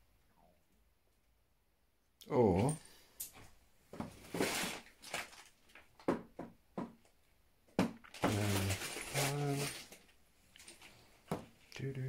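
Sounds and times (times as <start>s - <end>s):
household items knocking: 6.0s - 7.0s, 7.7s - 8.5s.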